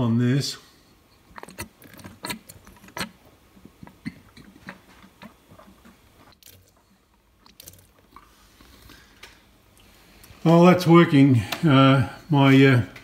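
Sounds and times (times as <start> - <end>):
fuel pump clicks and puffs: 1.2 - 9.4.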